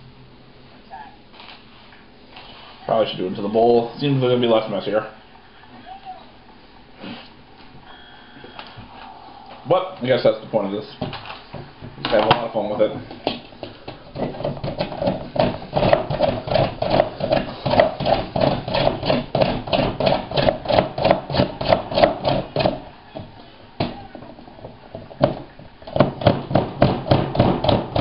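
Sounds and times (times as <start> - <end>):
chocolate rasping on a metal grater: 14.2 - 22.6.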